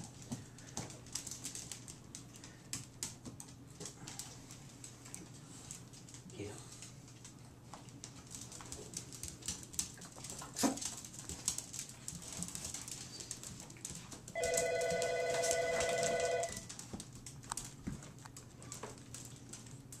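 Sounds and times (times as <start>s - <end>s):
electronic telephone ringer trilling: 14.4s - 16.6s.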